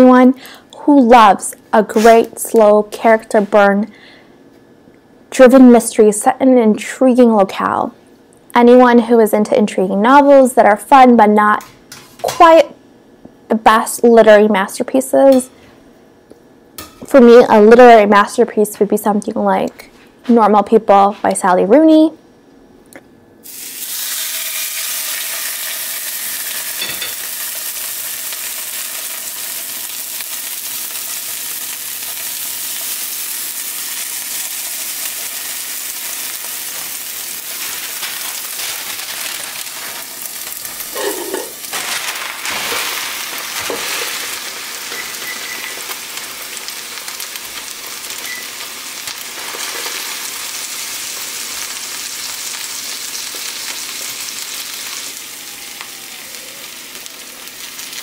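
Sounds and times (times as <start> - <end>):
fish sizzling in hot oil: 23.4 - 58.0.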